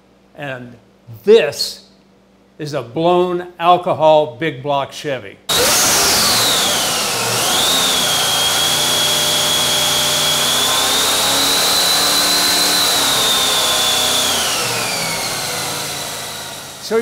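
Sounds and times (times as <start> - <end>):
engine running on dyno: 5.5 - 16.9
supercharger whine: 5.5 - 17.0.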